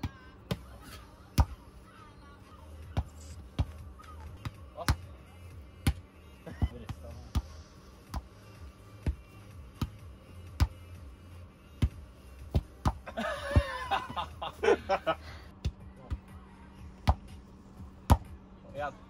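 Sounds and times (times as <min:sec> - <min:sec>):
voices: 0:00.0 - 0:07.7
football thumps: 0:01.4 - 0:01.6, 0:02.9 - 0:03.8, 0:05.8 - 0:08.3, 0:09.8 - 0:10.8, 0:11.8 - 0:14.3, 0:17.0 - 0:17.4
people laughing: 0:13.0 - 0:15.5.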